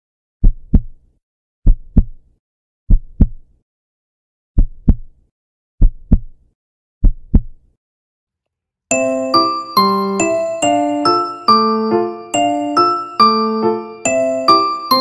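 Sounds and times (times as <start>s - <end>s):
heartbeat thumps: 0.4s - 1.0s, 1.7s - 2.2s, 2.9s - 3.4s, 4.6s - 5.1s, 5.8s - 6.3s, 7.0s - 7.6s.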